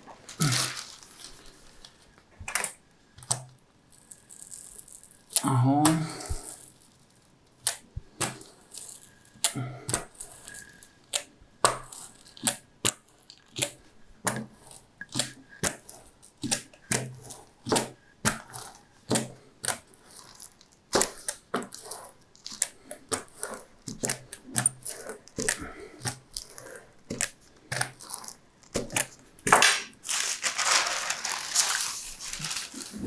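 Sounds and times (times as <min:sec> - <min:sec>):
paper crackling under roller: 0:00.0 - 0:02.1, 0:30.0 - 0:33.0.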